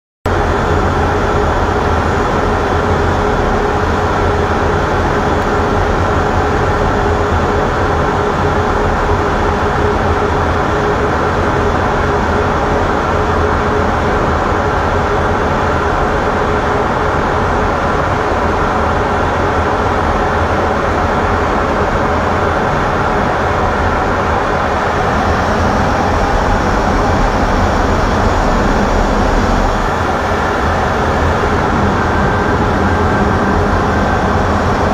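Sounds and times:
jet engine: 0:00.3 - 0:34.9
rushing air: 0:21.2 - 0:34.9.

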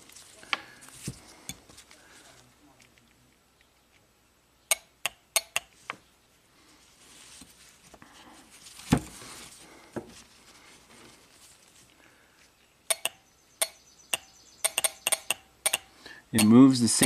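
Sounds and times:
rustle on paper towel: 0:06.6 - 0:12.5
solenoid clicking: 0:12.9 - 0:16.6.

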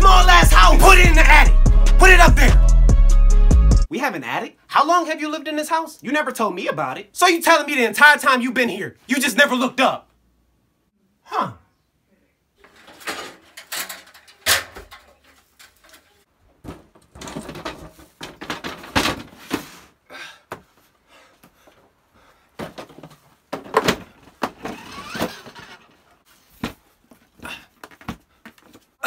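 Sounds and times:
plastic toy knocking and scraping: 0:23.6 - 0:26.0
wooden hatch sliding open: 0:23.6 - 0:26.0.

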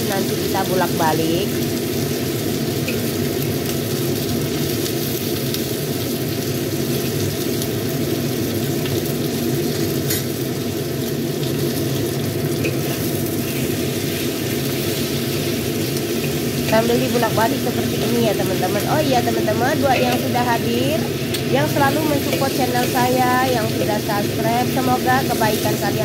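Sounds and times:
chicken sizzling in hot oil: 0:00.0 - 0:26.0.

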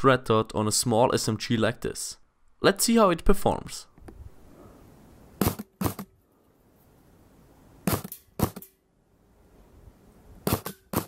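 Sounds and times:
airsoft gun shots: 0:05.4 - 0:06.1, 0:07.8 - 0:08.8, 0:10.4 - 0:11.0.

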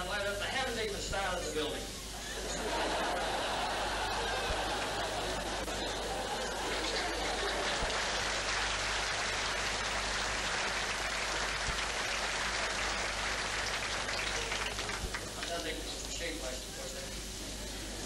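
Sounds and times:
audience laughing: 0:02.1 - 0:08.8, 0:16.7 - 0:18.0
audience clapping: 0:03.4 - 0:16.2.

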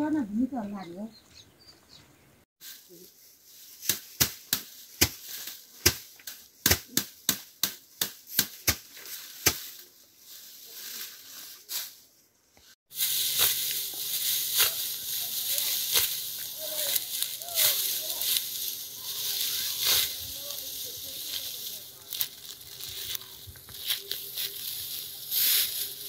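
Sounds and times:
wheat stalks rustling and snapping: 0:02.7 - 0:12.0, 0:12.6 - 0:26.0
blade chopping dry grass: 0:03.6 - 0:09.9, 0:12.9 - 0:26.0.

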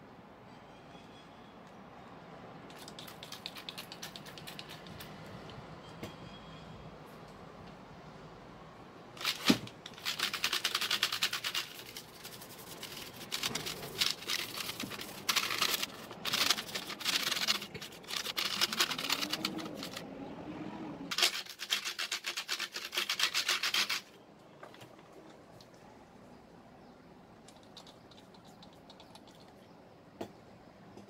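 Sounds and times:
scrubbing plastic keyboard: 0:09.2 - 0:20.0, 0:21.1 - 0:24.1.

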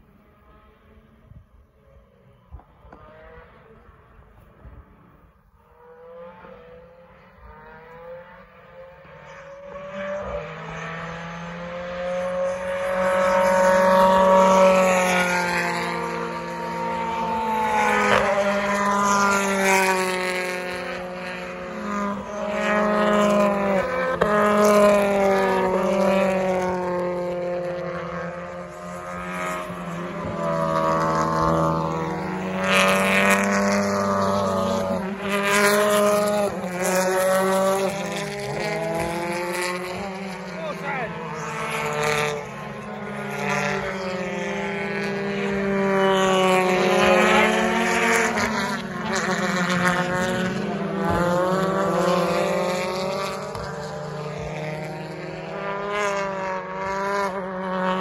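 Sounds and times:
race car engines passing: 0:00.0 - 0:58.0.

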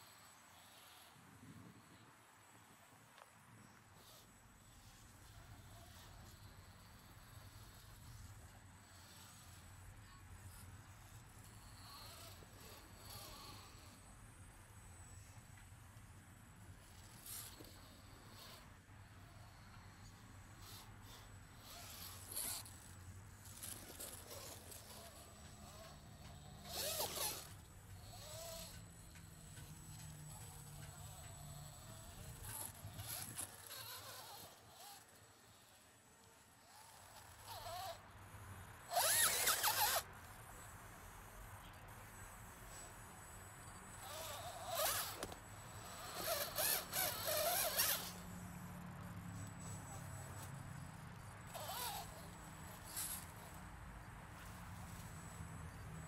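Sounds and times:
toy car motors whirring: 0:00.0 - 0:02.0, 0:02.8 - 0:56.0.

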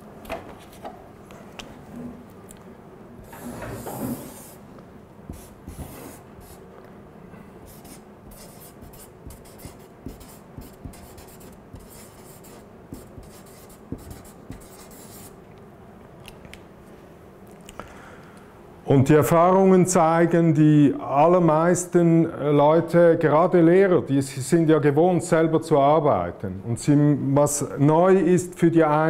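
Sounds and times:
marker pen scratching on paper: 0:03.2 - 0:04.6, 0:05.3 - 0:06.6, 0:07.7 - 0:15.4.

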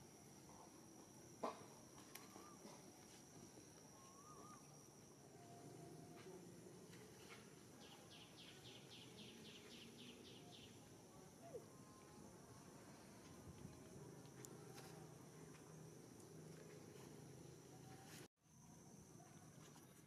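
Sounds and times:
high insect whine: 0:00.0 - 0:20.0.

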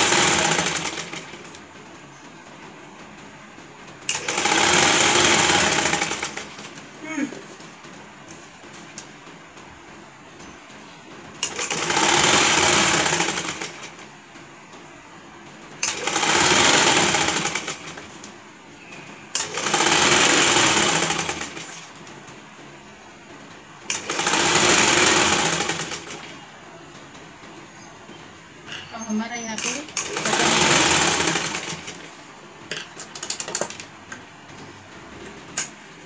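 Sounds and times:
sewing machine stitching: 0:00.0 - 0:01.6, 0:04.0 - 0:06.9, 0:11.4 - 0:14.1, 0:15.8 - 0:18.4, 0:19.3 - 0:22.1, 0:23.8 - 0:26.5, 0:28.9 - 0:32.2.

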